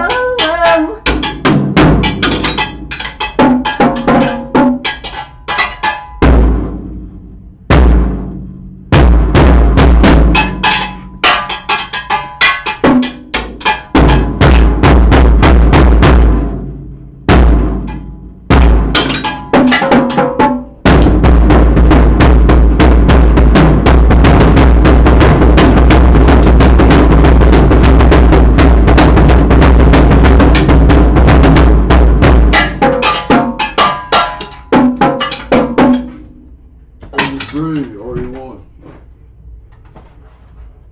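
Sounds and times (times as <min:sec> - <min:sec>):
drum kit played with sticks: 0:00.0 - 0:39.0
bass drum thumps: 0:01.0 - 0:04.9, 0:06.2 - 0:11.4, 0:12.8 - 0:34.0.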